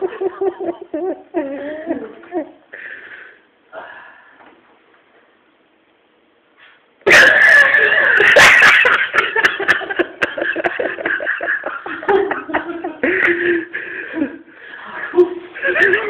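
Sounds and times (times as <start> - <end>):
loud laughter: 7.1 - 14.4, 15.1 - 16.0.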